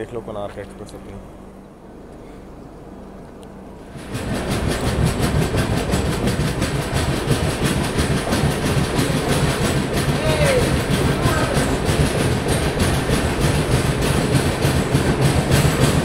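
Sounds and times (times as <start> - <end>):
train wheels clattering over rails: 3.8 - 16.0.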